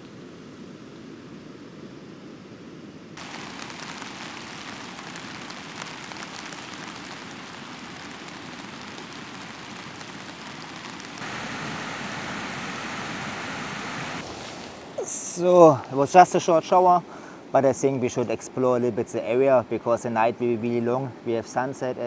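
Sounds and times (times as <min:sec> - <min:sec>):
rain on tent fabric: 0:03.2 - 0:17.4.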